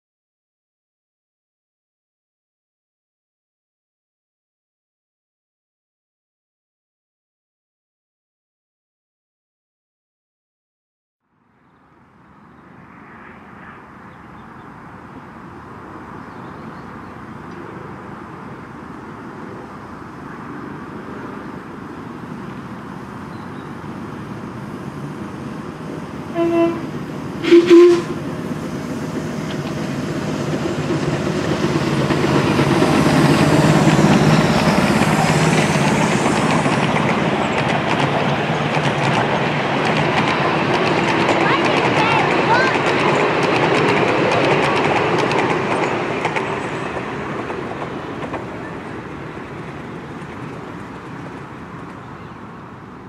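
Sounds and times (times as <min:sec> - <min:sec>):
miniature train passing: 0:11.7 - 0:53.0
train whistle toots: 0:26.3 - 0:28.2.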